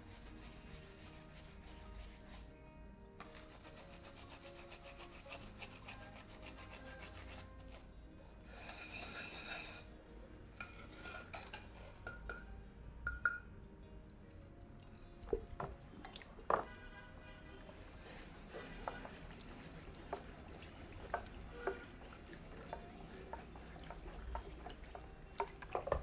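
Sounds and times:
scouring pad scrubbing a pan: 0.0s - 2.5s, 3.3s - 7.5s, 17.7s - 26.0s
water splashing: 15.3s - 26.0s.

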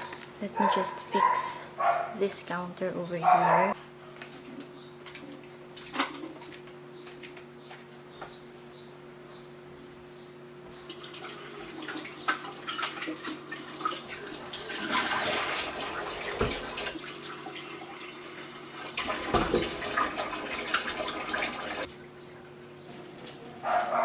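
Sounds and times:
tap running into sink: 16.1s - 16.9s, 19.0s - 21.4s.

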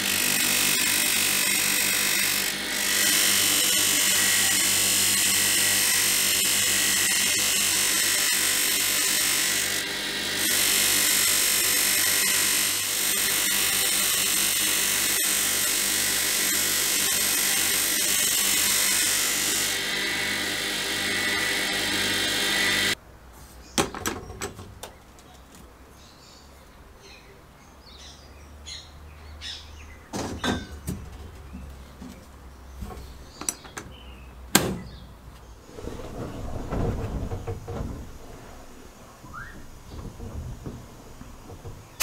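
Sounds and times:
bench grinder humming: 0.0s - 23.0s.

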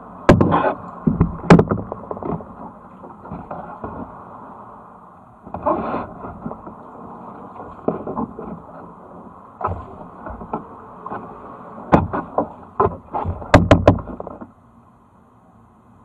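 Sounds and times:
paddle splashing water: 0.2s - 14.6s
paddle knocking on kayak: 0.3s - 4.2s, 9.6s - 11.3s, 11.9s - 14.5s.

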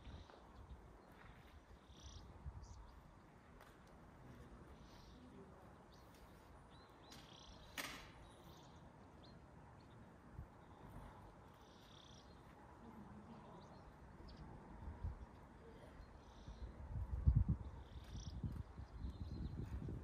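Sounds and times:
wind rumble on microphone: 0.0s - 3.5s, 13.5s - 20.0s.

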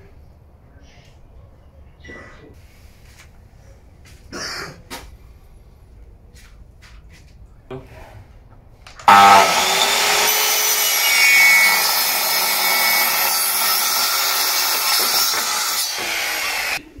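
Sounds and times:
mitre saw cutting wood: 9.0s - 16.8s.

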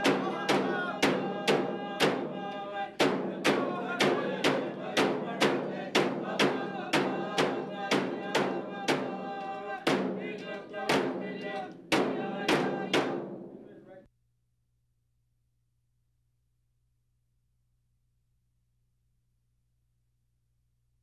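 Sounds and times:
music with steady beat: 0.0s - 13.7s.

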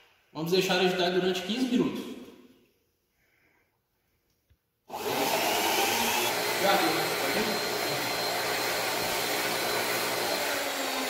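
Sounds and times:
stirrer motor humming: 4.9s - 11.0s.

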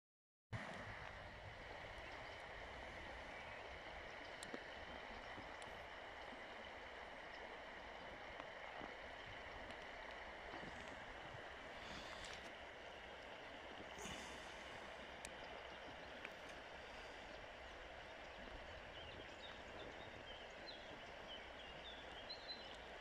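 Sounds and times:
river water running over pebbles: 0.6s - 23.0s
faint ticks: 3.6s - 11.3s, 11.9s - 12.6s, 14.0s - 18.6s.

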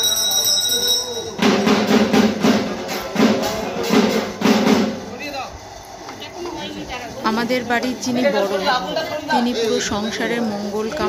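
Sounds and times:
hand bell ringing: 0.0s - 1.5s
barrel drum beating: 1.4s - 5.2s.

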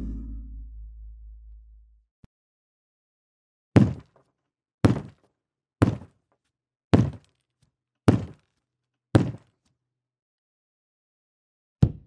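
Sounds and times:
bangs on solid object: 0.0s - 1.7s.

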